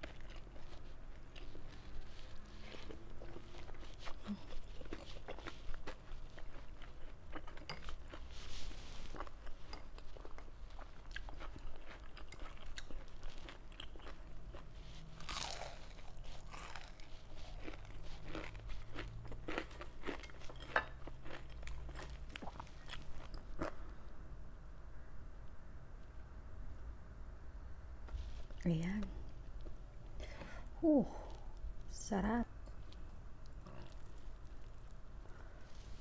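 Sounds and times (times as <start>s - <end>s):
person chewing and crunching: 0.0s - 23.9s, 32.7s - 35.9s.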